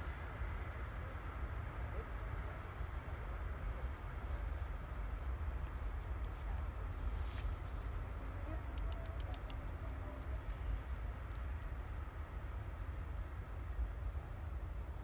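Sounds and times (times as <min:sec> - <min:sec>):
light metallic jingling: 0:09.0 - 0:14.5.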